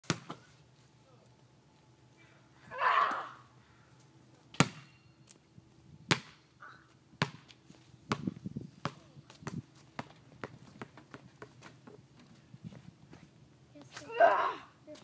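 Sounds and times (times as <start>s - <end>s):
basketball bouncing on asphalt: 0.0s - 0.4s, 4.6s - 5.0s, 6.1s - 6.4s, 7.2s - 12.0s.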